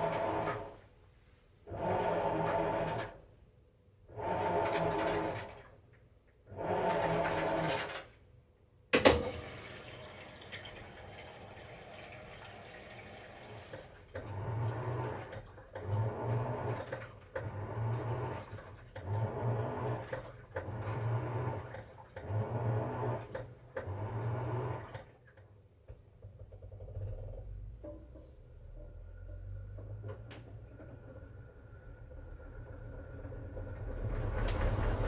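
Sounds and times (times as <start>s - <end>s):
water filling washer tub: 9.0s - 25.4s, 29.2s - 35.0s
low hum of spinning tub: 9.1s - 35.0s
washer agitating with swishing surges: 9.3s - 25.4s, 30.1s - 35.0s.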